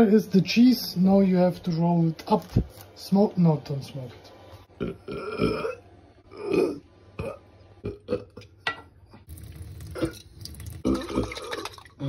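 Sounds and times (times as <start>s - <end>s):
person's throaty vocal noises: 4.8s - 8.4s, 10.8s - 12.0s
tap water running into jar: 9.3s - 12.0s.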